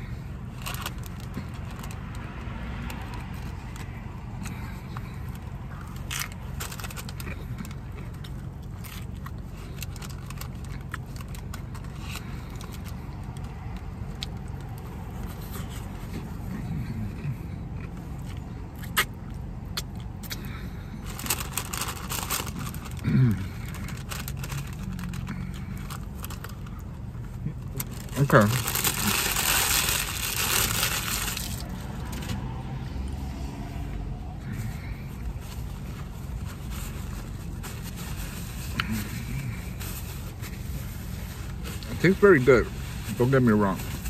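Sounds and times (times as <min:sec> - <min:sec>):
taco crunching and chewing: 0:00.0 - 0:33.1, 0:33.7 - 0:43.4
low hum inside car: 0:00.0 - 0:44.0
paper wrapper crackling: 0:21.0 - 0:26.8, 0:27.6 - 0:31.9
person murmuring: 0:23.0 - 0:23.6.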